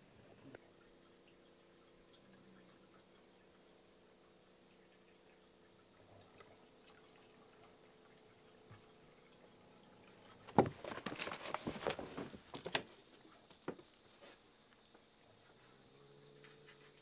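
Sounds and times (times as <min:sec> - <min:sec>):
kitten claws scrabbling on cardboard: 0:10.5 - 0:13.0.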